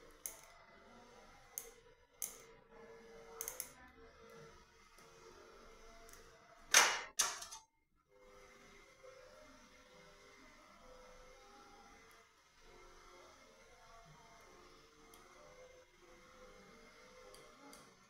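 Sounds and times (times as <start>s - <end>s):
pliers snapping brackets off: 6.7s - 7.6s.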